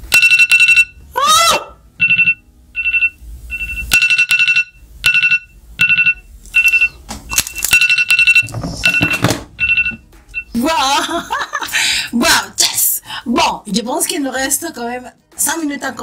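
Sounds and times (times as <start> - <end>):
electronic alarm beeping: 0.1 - 1.0, 2.0 - 10.6.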